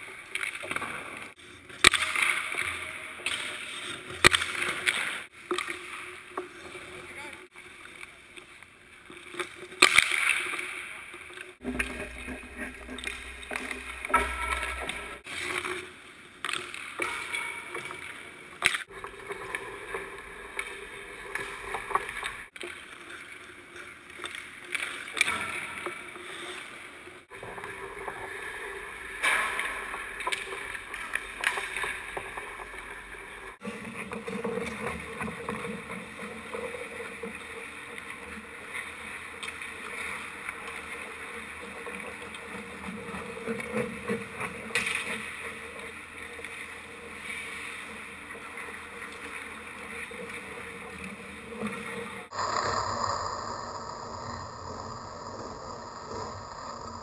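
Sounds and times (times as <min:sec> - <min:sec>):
skates scraping on ice: 0:08.4 - 0:52.3.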